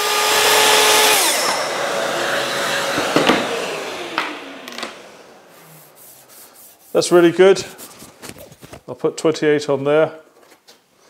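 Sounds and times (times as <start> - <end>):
saw motor winding down: 0.0 - 6.0
circular saw cutting wood: 0.0 - 7.8.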